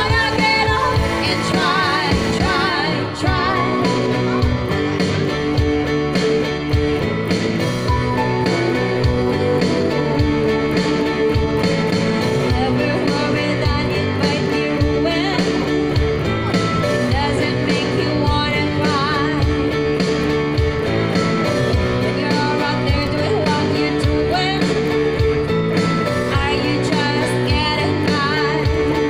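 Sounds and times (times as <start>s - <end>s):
woman singing with vibrato: 0.0s - 4.9s, 8.1s - 15.9s, 17.0s - 19.7s, 22.0s - 25.0s, 26.2s - 29.0s
accompaniment with steady beat: 0.0s - 22.3s
electric guitar: 0.0s - 29.0s.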